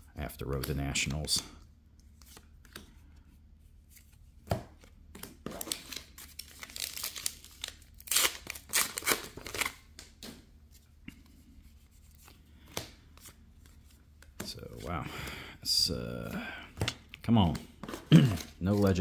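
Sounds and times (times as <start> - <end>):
plastic wrapper crinkling and tearing: 5.5 - 9.9.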